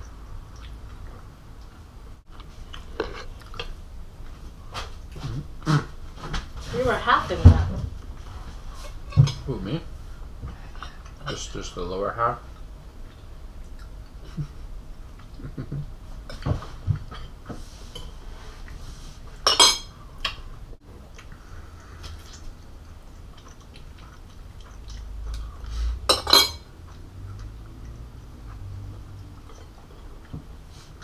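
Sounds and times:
cutlery clinking on ceramic plates: 19.4s - 19.9s, 26.1s - 26.7s
cutlery clattering: 19.5s - 19.9s, 26.1s - 26.7s.

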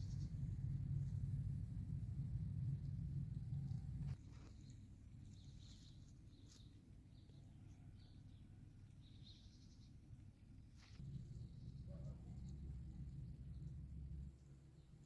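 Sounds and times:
low background rumble: 0.0s - 15.0s
small birds chirping: 3.5s - 15.0s.

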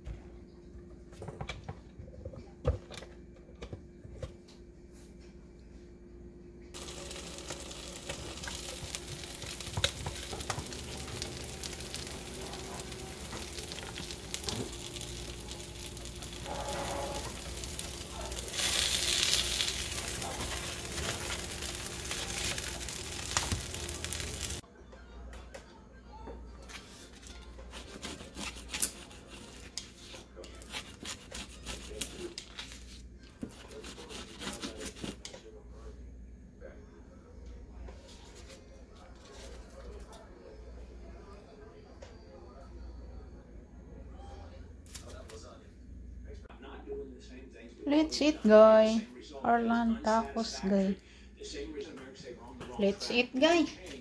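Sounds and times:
food sizzling with pops: 6.8s - 24.6s.

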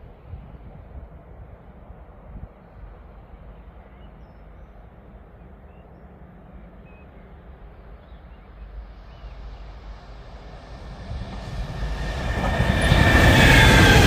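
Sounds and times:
faint bird chirps: 5.4s - 9.7s.

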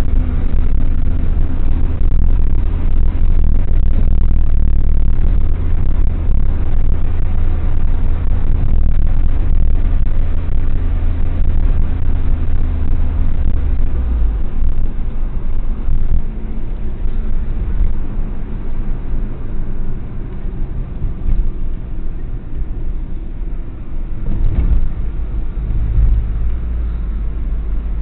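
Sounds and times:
engine rumble: 0.0s - 28.0s
tyres on road: 0.0s - 28.0s.

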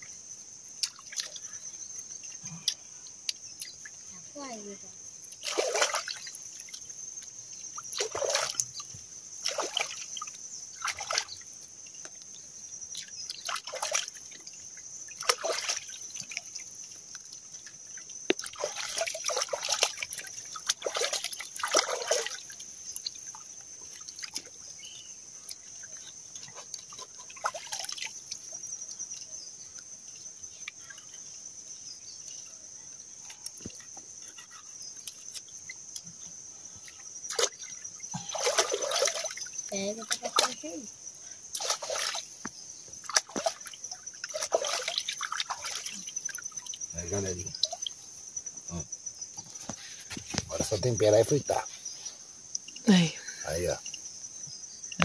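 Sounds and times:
hands splashing water: 5.3s - 6.9s, 7.8s - 11.4s, 13.0s - 14.4s, 15.1s - 17.4s, 18.2s - 24.5s, 26.0s - 28.5s, 36.8s - 40.6s, 41.5s - 42.3s, 43.0s - 46.9s.

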